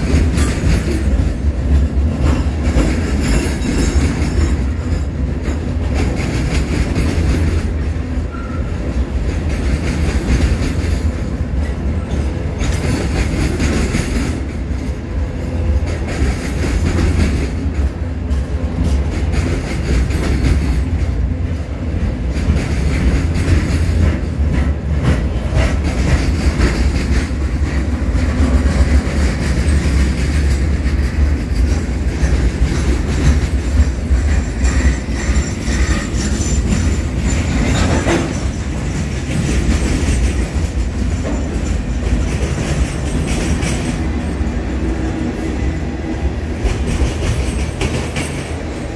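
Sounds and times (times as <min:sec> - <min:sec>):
train wheels rumbling on rails: 0:00.0 - 0:48.9
wheels clacking: 0:22.3 - 0:44.4.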